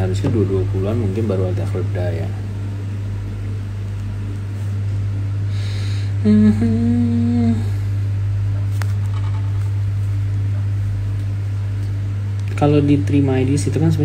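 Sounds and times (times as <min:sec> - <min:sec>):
low hum: 0:00.0 - 0:14.0
man humming hmm: 0:05.4 - 0:08.2.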